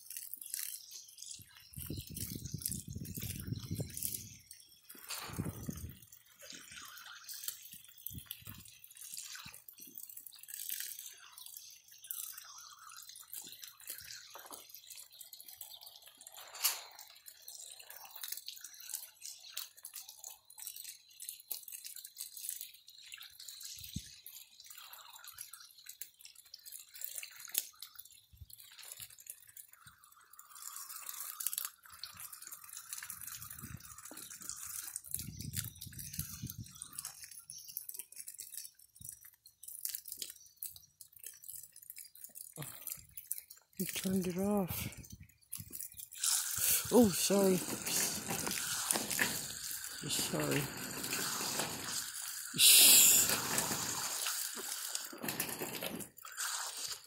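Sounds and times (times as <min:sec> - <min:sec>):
hose water splashing: 0:00.0 - 0:57.0.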